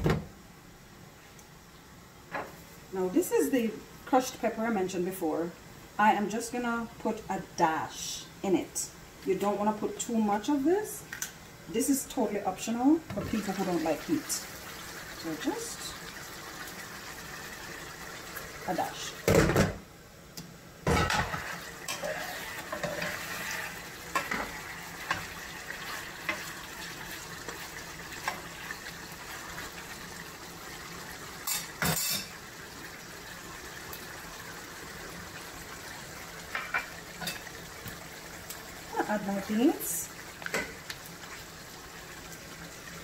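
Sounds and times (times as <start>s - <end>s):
gravy simmering: 12.3s - 19.3s, 21.1s - 43.0s
spoon stirring a pot: 21.2s - 29.7s.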